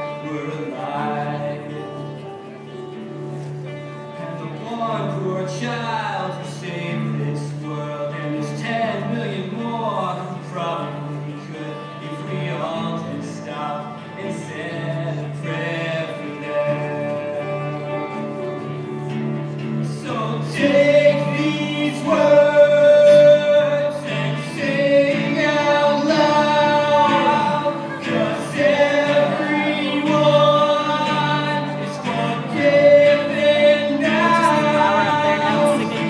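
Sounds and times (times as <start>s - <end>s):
acoustic guitars: 0.0s - 36.0s
keyboard: 0.0s - 36.0s
person singing long notes: 19.9s - 36.0s.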